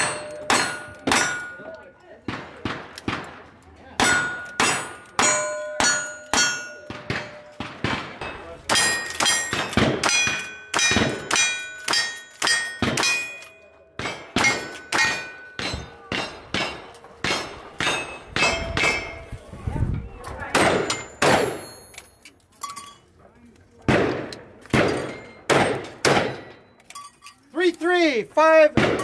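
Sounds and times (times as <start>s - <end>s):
steel plate ringing: 4.0s - 7.5s.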